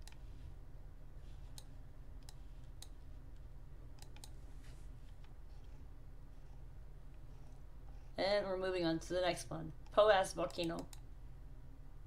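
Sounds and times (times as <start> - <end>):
computer mouse clicking: 0.0 - 0.2, 1.5 - 4.4, 9.8 - 11.1
low steady hum: 0.0 - 12.0.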